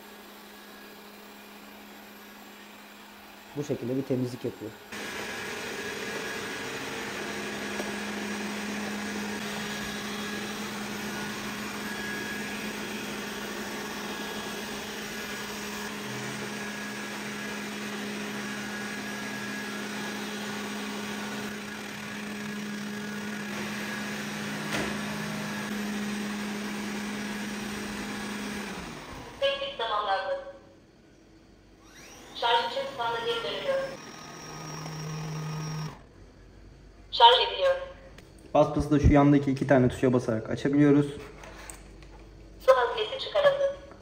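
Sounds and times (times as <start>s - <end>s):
robot vacuum motor hum: 0.0s - 29.8s, 31.8s - 36.1s.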